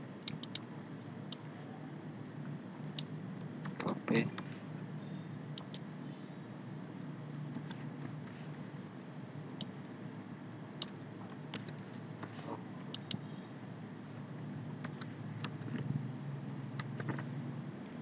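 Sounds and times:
low background hum: 0:00.0 - 0:18.0
mouse and keyboard clicks: 0:00.3 - 0:00.6, 0:07.5 - 0:08.4, 0:10.8 - 0:13.2, 0:14.8 - 0:15.9, 0:16.8 - 0:17.4.

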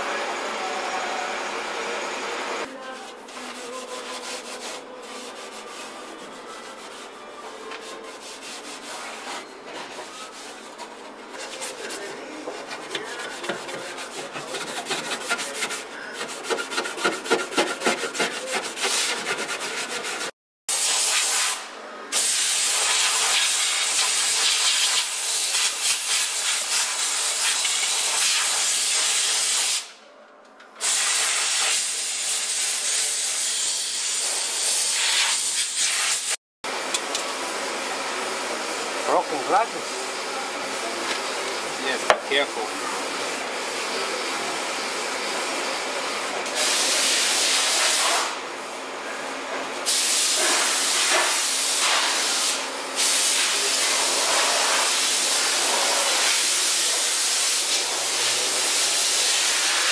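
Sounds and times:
hand sanding sheet metal: 0:02.8 - 0:21.4.

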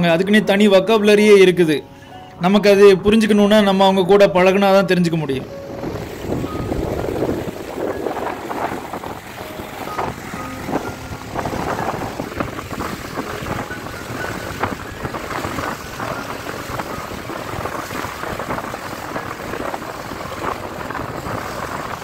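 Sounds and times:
waves splashing in shallows: 0:05.4 - 0:22.0
wind buffeting microphone: 0:05.4 - 0:22.0.

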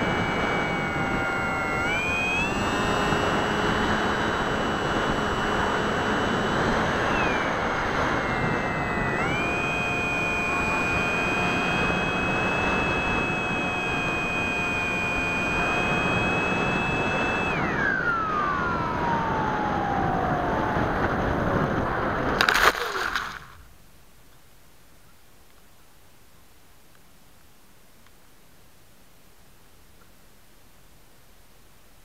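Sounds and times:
electric motor propeller whine: 0:00.0 - 0:22.6.

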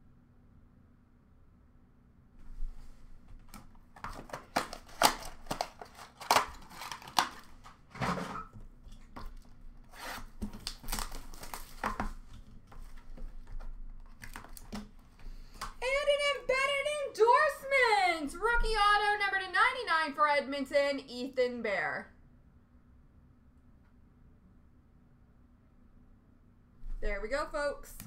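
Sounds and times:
packaging rustling and scraping: 0:02.4 - 0:15.2
cardboard tearing rips: 0:04.0 - 0:08.2, 0:09.8 - 0:12.2.

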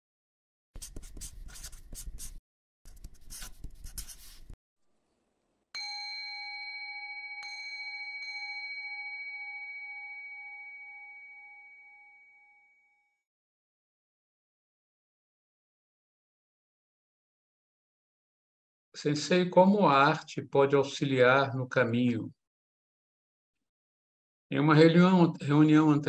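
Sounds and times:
pen scratching on paper: 0:00.8 - 0:04.6
bell ringing: 0:05.8 - 0:12.8.

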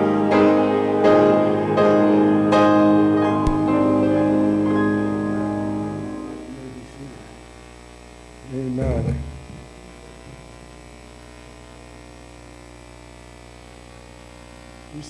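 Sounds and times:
piano chord: 0:00.0 - 0:07.4
electrical mains hum: 0:00.0 - 0:15.0
person's voice: 0:06.3 - 0:07.4, 0:08.4 - 0:09.7.

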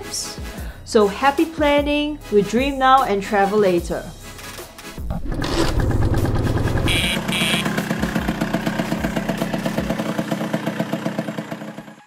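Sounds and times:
scooter engine idling: 0:05.2 - 0:12.0
short high beeps: 0:06.9 - 0:07.7.

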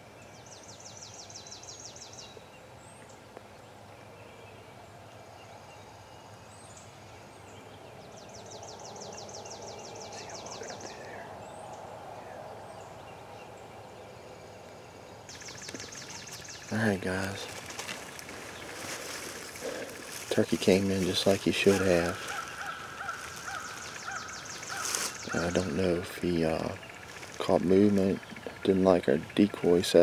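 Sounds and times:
songbird trilling: 0:07.7 - 0:14.1, 0:15.3 - 0:30.0.

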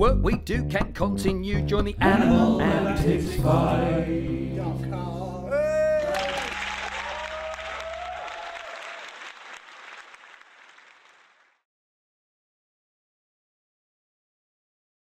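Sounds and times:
band playing low notes: 0:00.0 - 0:07.6
person whooping: 0:05.5 - 0:09.1
applause and cheering: 0:05.9 - 0:11.6.

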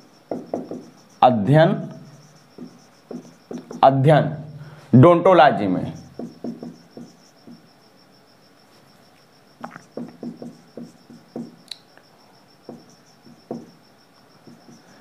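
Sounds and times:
faint high-pitched pulsing chirp: 0:00.0 - 0:15.0
marker scratching on whiteboard: 0:02.2 - 0:03.9.

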